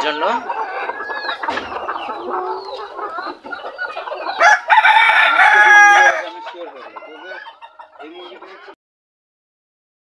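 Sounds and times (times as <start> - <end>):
chickens clucking: 0.0 - 8.8
rooster crowing: 4.4 - 6.7.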